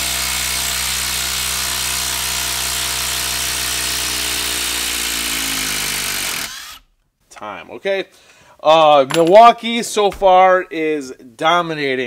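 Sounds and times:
impact driver hammering: 0.0 - 6.8.

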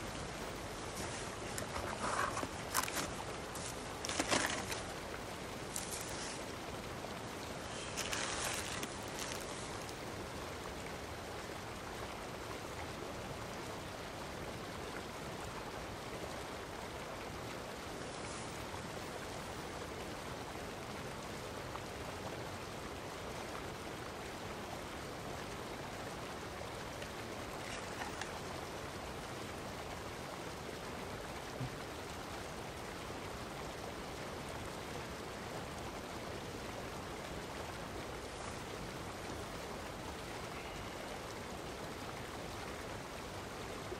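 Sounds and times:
running water rushing: 0.0 - 43.9.

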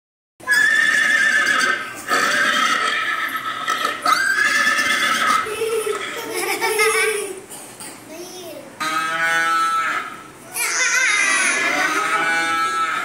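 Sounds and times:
horse whinnying from speaker: 0.5 - 5.4.

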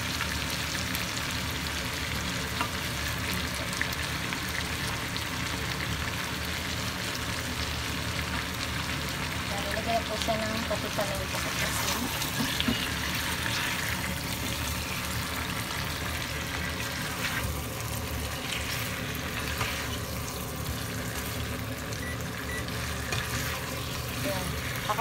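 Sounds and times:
chicken sizzling in frying pan: 0.0 - 25.0
spatula turning meat: 10.8 - 25.0.

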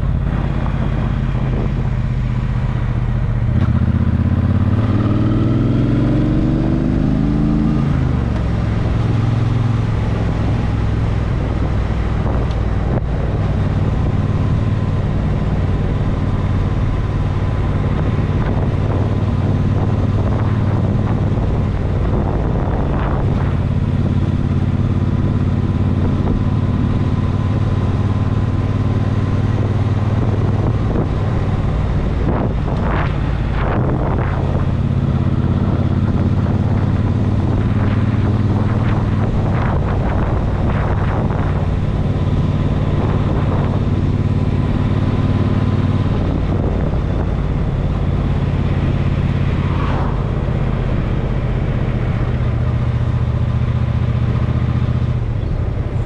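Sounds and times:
vehicle engine running: 0.0 - 56.0
whooshing sweeps: 30.2 - 54.4.

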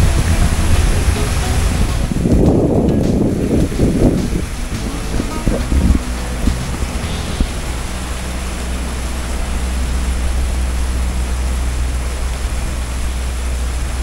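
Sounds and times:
boat engine droning: 0.0 - 14.0
wind and water rushing: 0.0 - 14.0.

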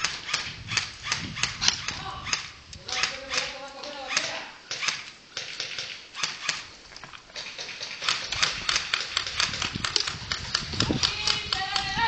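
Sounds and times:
airsoft guns firing: 0.0 - 6.7, 7.3 - 12.0.

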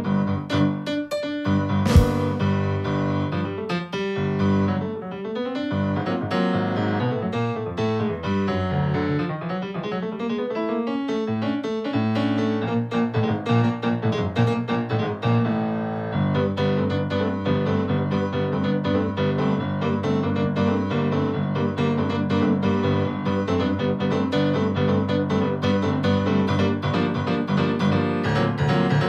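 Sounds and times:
jazz piano keyboard: 0.0 - 29.0.

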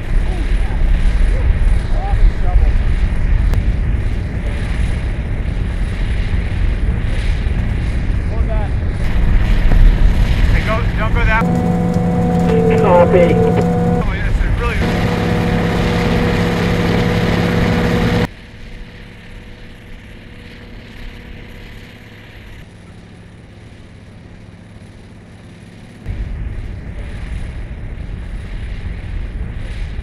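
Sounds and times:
snowplow engine running: 8.8 - 26.0
distant rumble and hiss: 9.0 - 18.3.

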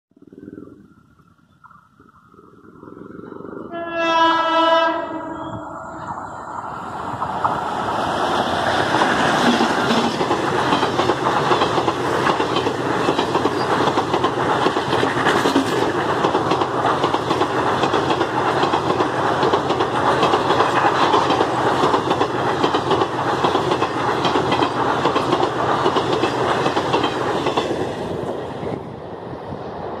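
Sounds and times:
locomotive horn blast: 3.7 - 5.7
train wheels clattering over rail joints: 7.2 - 28.2.

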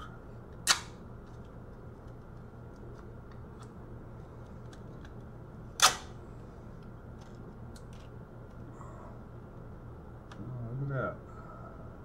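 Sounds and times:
plastic piece snapping: 0.6 - 1.0.

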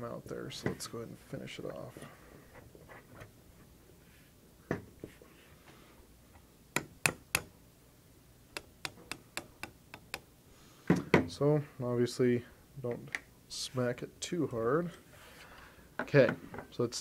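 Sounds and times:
hammer tapping a pin punch: 6.8 - 7.5, 8.6 - 10.3.

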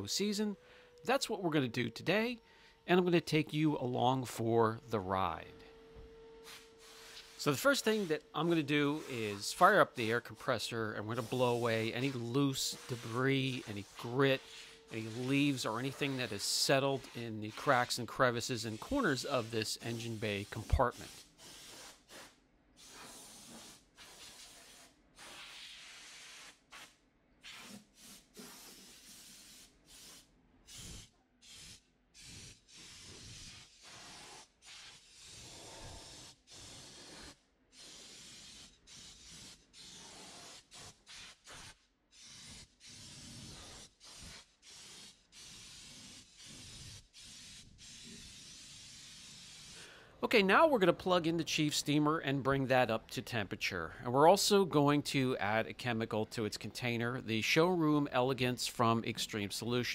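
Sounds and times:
compressed air blow gun hissing: 6.4 - 7.4, 27.5 - 49.9.

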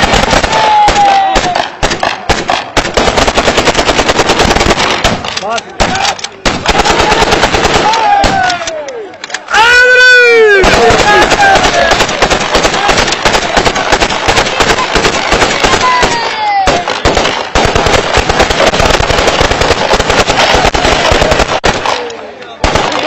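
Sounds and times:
rifle gunfire: 0.0 - 8.6, 10.6 - 23.0
men shouting: 0.4 - 1.8, 6.8 - 16.9.

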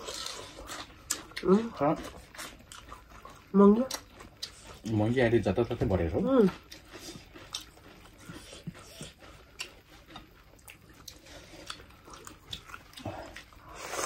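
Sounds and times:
wet chewing: 0.0 - 14.0.

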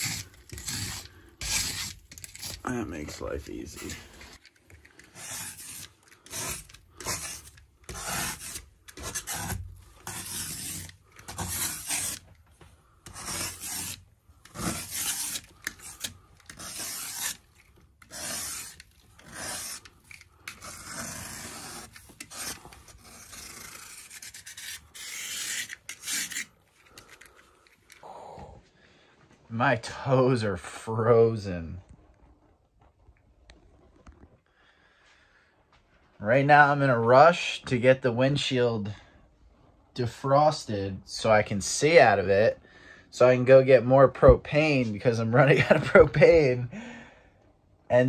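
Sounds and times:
scraper scraping frost off glass: 0.0 - 12.3, 13.0 - 27.3.

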